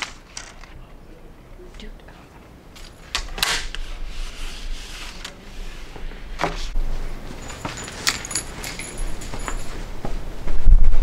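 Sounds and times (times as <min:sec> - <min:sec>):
thin high ringing: 0:07.0 - 0:10.0
light metallic jingling: 0:07.3 - 0:10.0.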